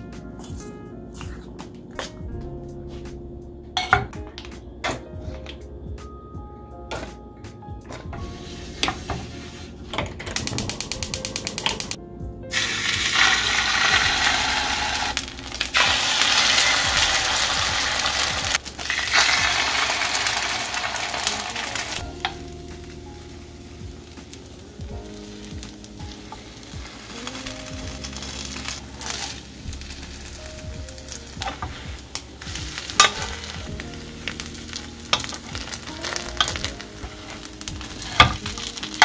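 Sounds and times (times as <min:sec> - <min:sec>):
background music with steady tones: 0:00.0 - 0:39.0
food sizzling in hot oil: 0:10.5 - 0:39.0.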